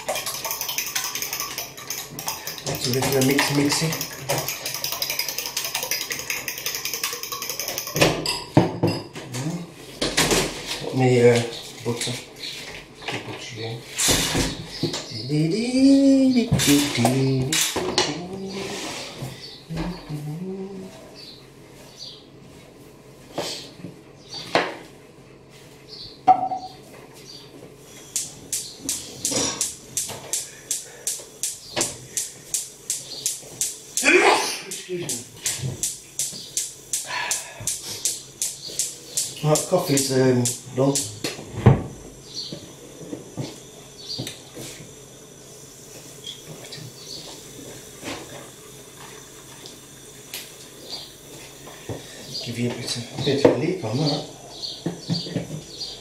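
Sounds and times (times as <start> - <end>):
fork beating eggs in bowl: 0.0 - 8.4, 34.7 - 41.1.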